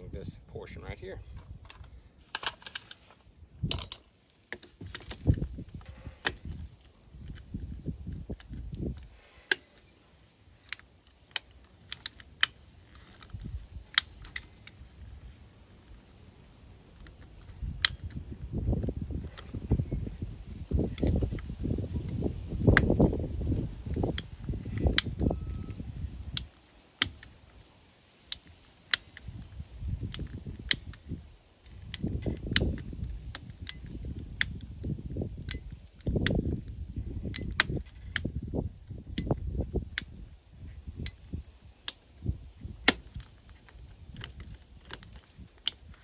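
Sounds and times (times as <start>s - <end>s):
low rumbling handling noise: 1.1s - 9.8s.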